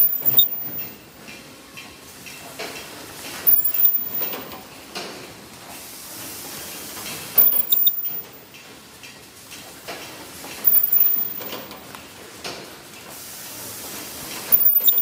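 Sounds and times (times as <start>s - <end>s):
short bursts of machine noise: 0.0s - 1.0s, 3.5s - 4.6s, 7.4s - 8.4s, 10.6s - 11.8s, 14.5s - 15.0s
production line machine running: 0.0s - 1.2s, 3.1s - 4.8s, 6.4s - 8.4s, 10.3s - 12.3s, 13.7s - 15.0s.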